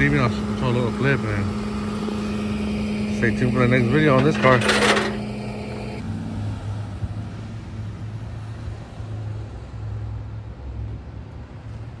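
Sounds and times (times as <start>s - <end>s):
vehicle engine running: 0.0s - 6.0s.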